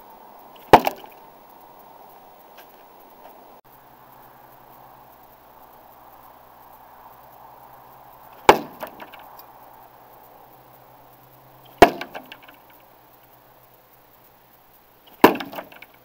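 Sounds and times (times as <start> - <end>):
knives striking wooden target: 0.6 - 1.2, 8.4 - 9.3, 11.8 - 12.6, 15.1 - 16.0.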